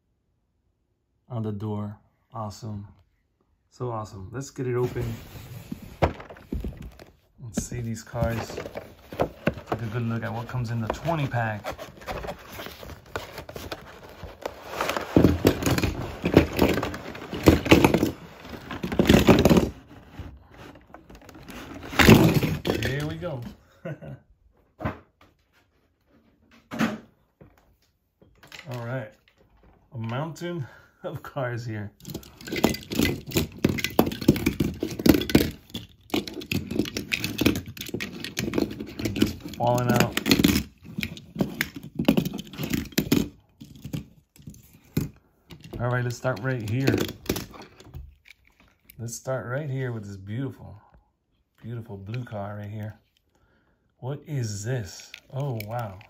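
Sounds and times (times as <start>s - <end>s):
toy cars clattering: 7.6s - 19.8s, 32.0s - 49.0s.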